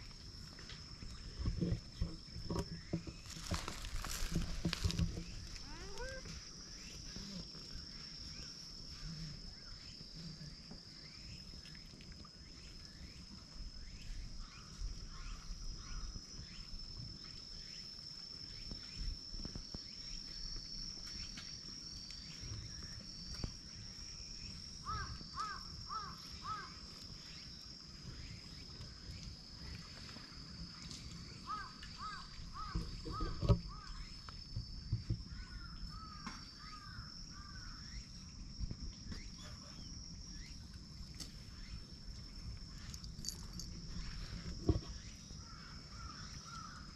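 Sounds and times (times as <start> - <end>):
high-pitched insect drone: 0.0 - 11.8, 12.5 - 40.6
handling knocks and rustles: 1.4 - 6.1.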